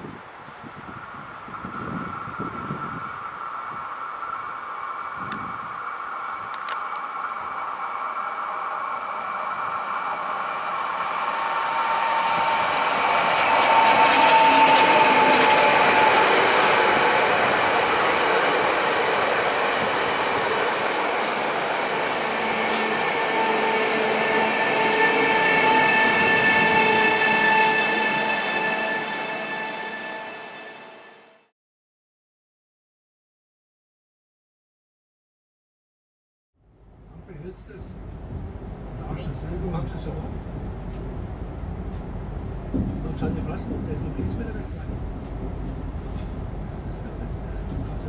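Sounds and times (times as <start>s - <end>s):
train wheels rumbling: 1.3s - 31.1s, 37.2s - 48.0s
electric traction whine: 1.7s - 31.3s.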